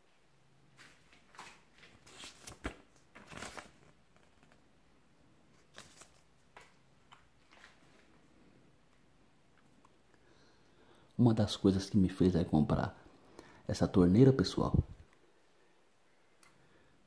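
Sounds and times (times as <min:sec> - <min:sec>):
paper leaflet rustling: 0:00.8 - 0:04.7, 0:05.5 - 0:08.1.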